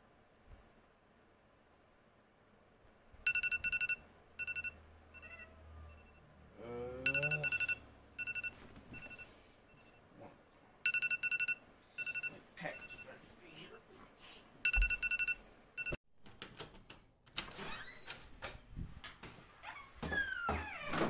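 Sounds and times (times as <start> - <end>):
phone electronic ringtone beeps: 3.3 - 6.2, 7.1 - 10.0, 10.9 - 13.0, 14.7 - 16.0
man groaning: 6.6 - 7.5.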